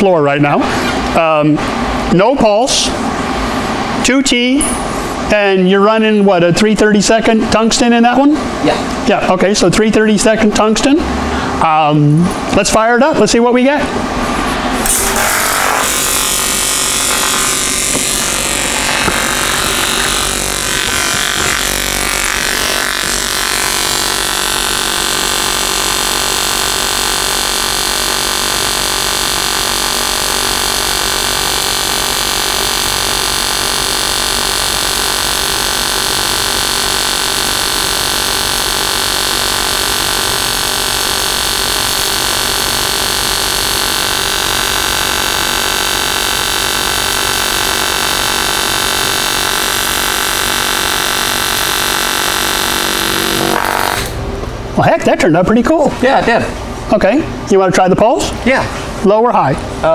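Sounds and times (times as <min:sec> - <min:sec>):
welding arc buzzing: 0:14.6 - 0:54.7.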